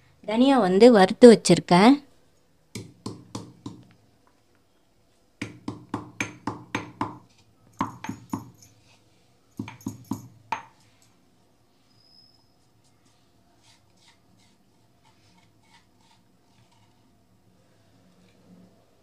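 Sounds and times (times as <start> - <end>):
stone pestle pounding in mortar: 2.8 - 3.8, 5.4 - 8.6, 9.6 - 10.8.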